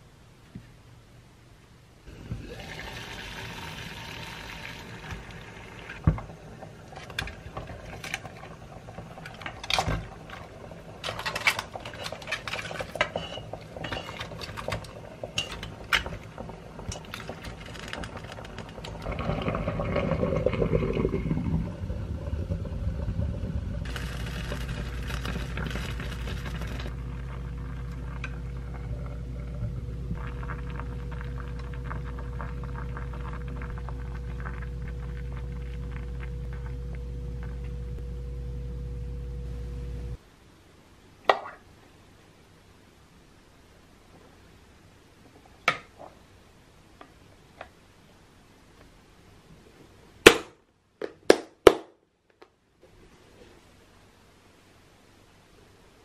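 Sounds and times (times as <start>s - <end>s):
water boiling in a pot: 2.1s - 38.0s.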